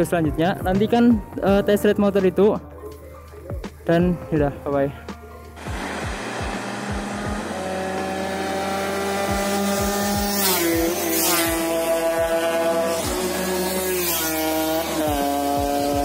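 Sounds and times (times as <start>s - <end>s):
motorcycles passing at speed: 5.7s - 16.0s.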